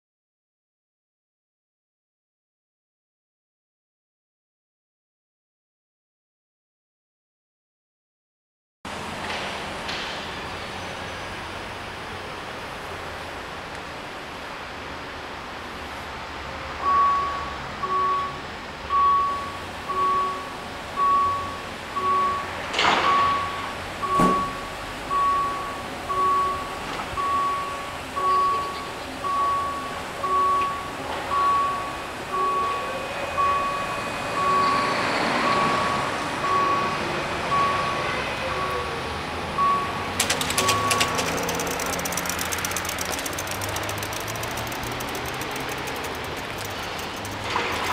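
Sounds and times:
level crossing warning bell: 16.8s - 47.9s
rapid ticking: 40.2s - 47.9s.

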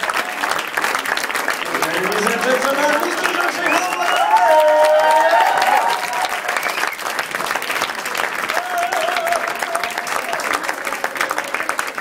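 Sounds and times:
audience applauding: 0.0s - 12.0s
wavering cheer: 2.1s - 7.0s, 8.4s - 11.9s.

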